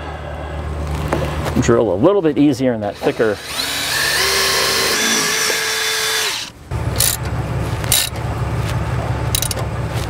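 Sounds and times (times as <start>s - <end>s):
low steady hum: 0.0s - 10.0s
cordless drill boring steel: 2.9s - 7.1s.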